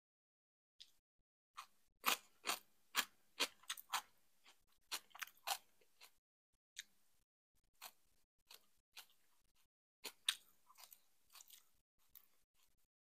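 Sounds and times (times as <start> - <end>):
person chewing crunchy food: 1.6 - 6.2, 7.7 - 12.9.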